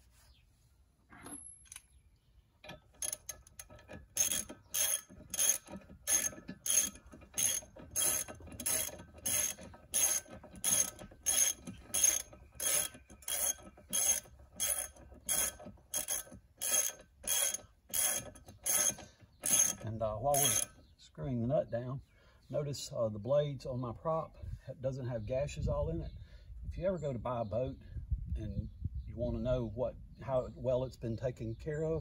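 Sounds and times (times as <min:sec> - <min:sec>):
ratchet wrench ratcheting: 0:02.8 - 0:20.8.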